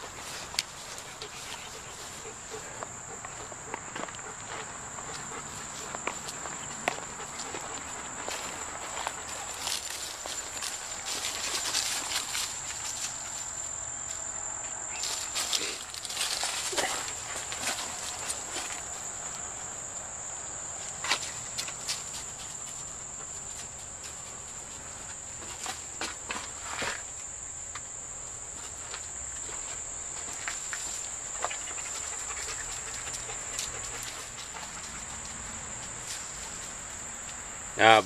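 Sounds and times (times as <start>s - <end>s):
footsteps through brush: 0.0s - 14.3s, 14.9s - 19.5s
insects droning: 0.0s - 38.0s.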